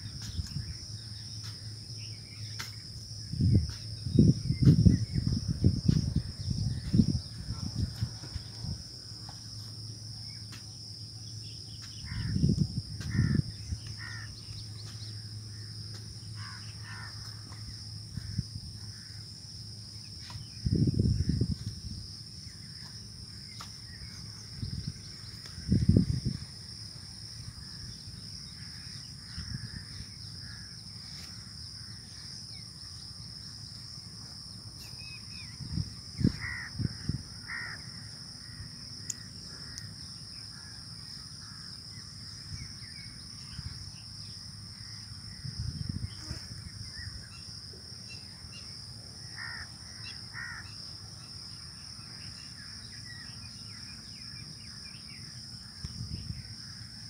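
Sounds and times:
high-pitched insect drone: 0:00.0 - 0:57.0
crows cawing: 0:12.1 - 0:12.4, 0:13.0 - 0:13.4, 0:14.0 - 0:14.3, 0:16.4 - 0:17.4, 0:36.4 - 0:36.8, 0:37.4 - 0:38.0, 0:49.3 - 0:50.8.

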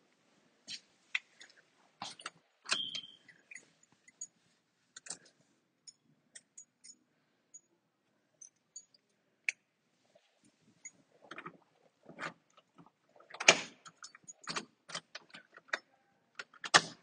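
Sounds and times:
objects being handled clicks and knocks: 0:00.7 - 0:04.3, 0:05.0 - 0:07.0.

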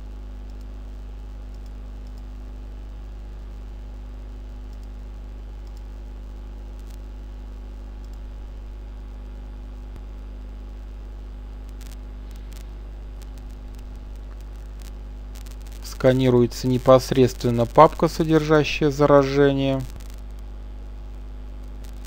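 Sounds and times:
electrical hum with hiss: 0:00.0 - 0:22.0
faint mouse clicks: 0:00.5 - 0:00.7, 0:01.5 - 0:02.3, 0:04.7 - 0:05.0, 0:05.6 - 0:05.9, 0:08.0 - 0:08.2.

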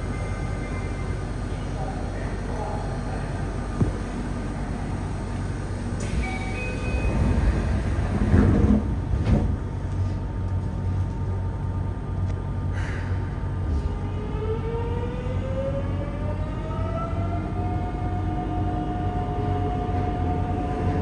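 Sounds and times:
subway car humming: 0:00.0 - 0:21.0
sliding doors shutting: 0:04.9 - 0:09.6.

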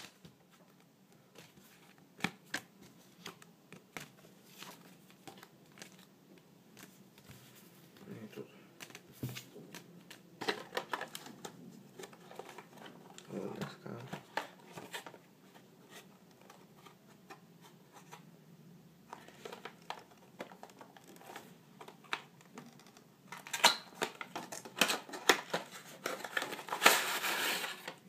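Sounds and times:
packaging rustling: 0:19.1 - 0:28.0.

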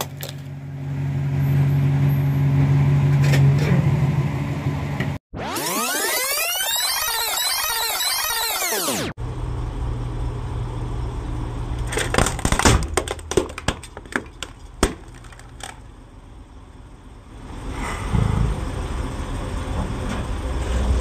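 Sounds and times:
plastic cracking under tyre: 0:00.0 - 0:00.5, 0:11.8 - 0:15.9
truck engine running: 0:09.2 - 0:21.0.

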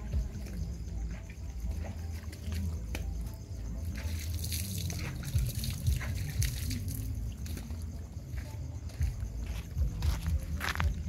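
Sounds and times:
dogs lapping and slurping: 0:01.6 - 0:07.8.

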